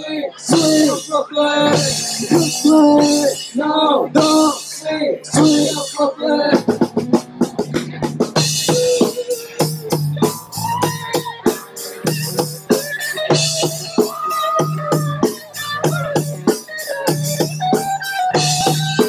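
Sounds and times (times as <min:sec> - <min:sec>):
electric guitar: 0:00.0 - 0:19.0
drum kit fast beat: 0:00.4 - 0:19.0
electric bass: 0:05.3 - 0:19.0.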